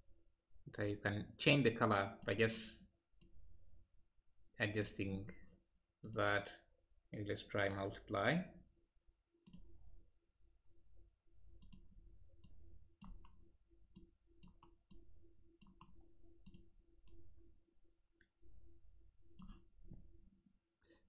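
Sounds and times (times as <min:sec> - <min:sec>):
computer mouse clicks: 0:09.4 - 0:09.7, 0:11.6 - 0:17.3.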